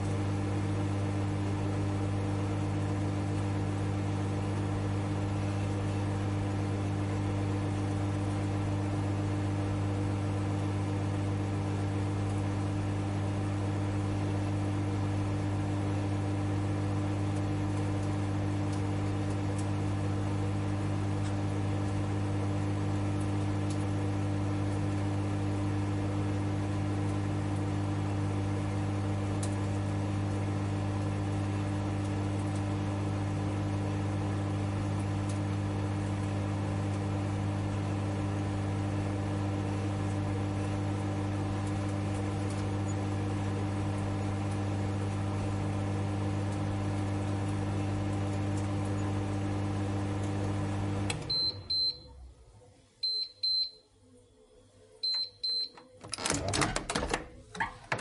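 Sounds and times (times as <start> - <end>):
microwave oven humming: 0.0 - 58.0
microwave click: 40.0 - 52.1, 55.0 - 58.0.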